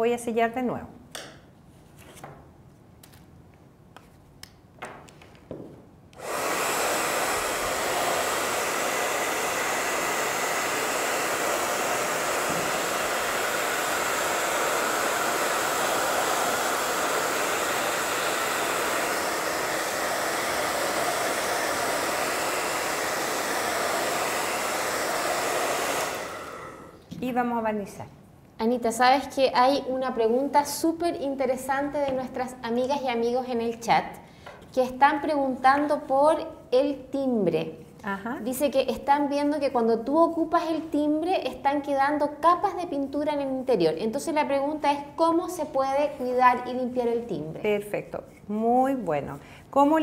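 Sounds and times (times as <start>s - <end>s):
hair dryer blowing: 6.2s - 27.0s.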